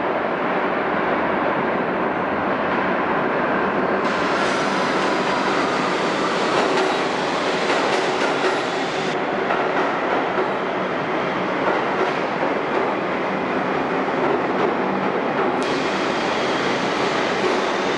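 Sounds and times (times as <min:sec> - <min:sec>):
subway train wheels rumbling: 0:00.0 - 0:17.9.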